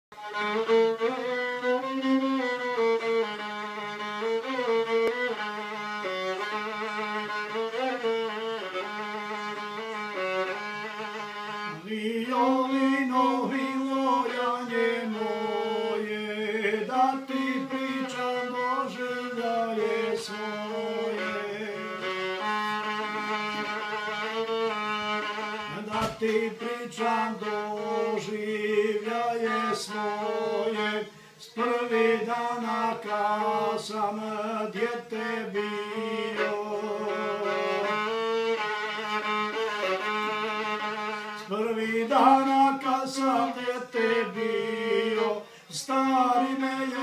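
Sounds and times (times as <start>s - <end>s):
solo violin melody: 0.1s - 47.0s.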